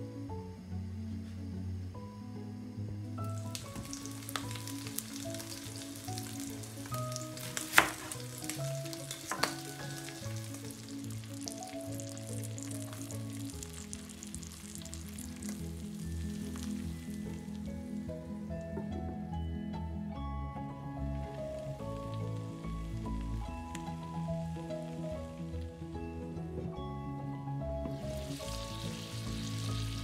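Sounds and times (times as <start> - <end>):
soft background music: 0.0 - 30.0
steak sizzling in a frying pan: 3.2 - 18.0, 27.9 - 30.0.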